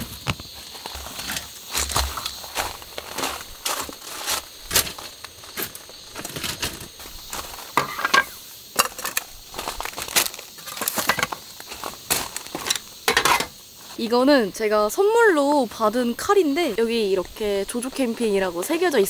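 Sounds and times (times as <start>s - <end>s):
footsteps on gravel: 0.0s - 14.1s.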